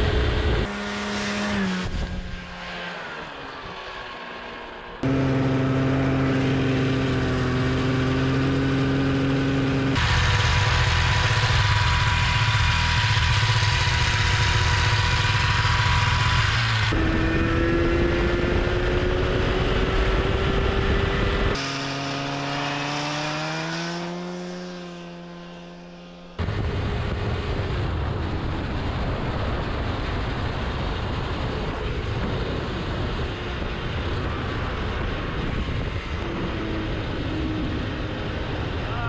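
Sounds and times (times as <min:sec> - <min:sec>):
snowmobile engine accelerating: 0:00.0 - 0:39.0
wind rush on microphone: 0:13.4 - 0:21.6, 0:26.4 - 0:39.0.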